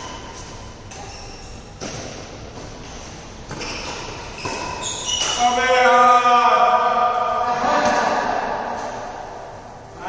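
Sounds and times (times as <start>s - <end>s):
rackets hitting shuttlecock: 0.1s - 5.6s.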